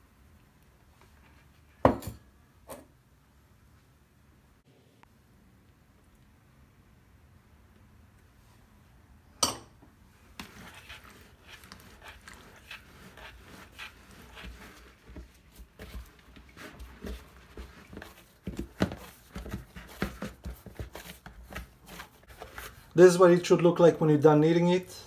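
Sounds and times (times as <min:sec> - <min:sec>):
hands squishing dough: 0:10.1 - 0:24.6.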